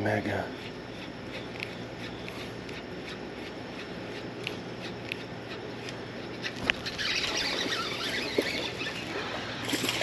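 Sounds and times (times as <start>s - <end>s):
fishing reel drag squealing: 6.3s - 10.0s.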